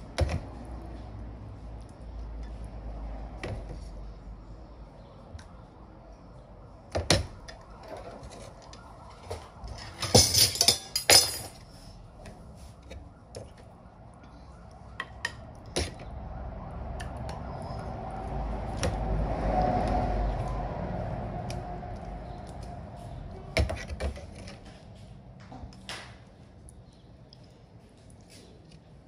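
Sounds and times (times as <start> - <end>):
bowls and spoons clinking: 10.0 - 11.6.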